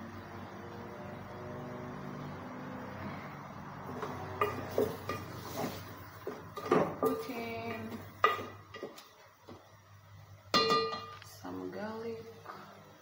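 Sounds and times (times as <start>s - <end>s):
wooden spoon knocking metal pot: 3.9s - 5.4s, 6.2s - 9.0s, 10.5s - 11.2s.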